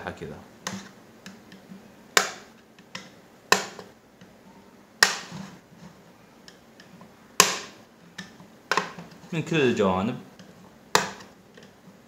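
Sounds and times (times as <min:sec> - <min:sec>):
plastic clips popping: 0:00.6 - 0:04.0, 0:05.0 - 0:05.4.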